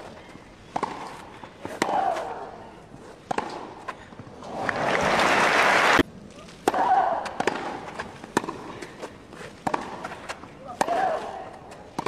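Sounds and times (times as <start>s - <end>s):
racket hitting tennis ball: 0.0s - 4.7s, 6.0s - 12.0s
crowd noise: 4.4s - 8.0s.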